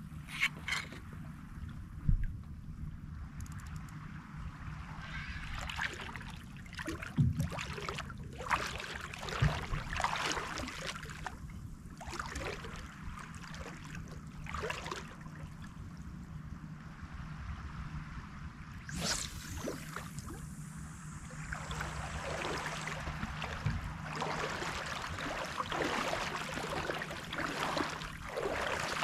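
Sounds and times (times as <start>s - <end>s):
steady low hum: 0.0s - 29.0s
water sloshing and splashing: 4.8s - 15.8s, 21.2s - 29.0s
short low thump: 23.2s - 24.0s.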